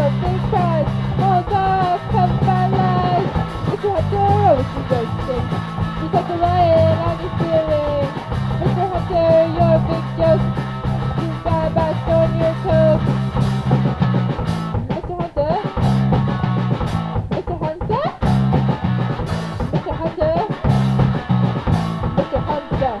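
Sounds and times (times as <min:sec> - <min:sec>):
wavering lead melody: 0:00.0 - 0:14.8
rock band playing: 0:00.0 - 0:23.0.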